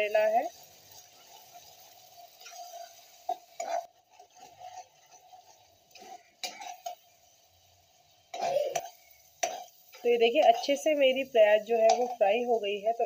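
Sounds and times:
onion frying in oil: 0.0s - 13.0s
metal spoon scraping pan: 1.0s - 7.1s, 8.3s - 11.0s, 11.6s - 12.5s
spoon knocking against pan: 11.8s - 12.2s.

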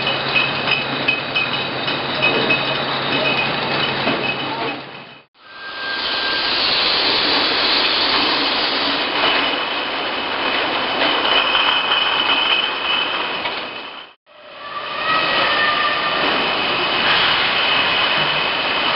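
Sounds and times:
glass bottles on conveyors: 0.0s - 5.2s
faint high whine: 5.4s - 7.2s.

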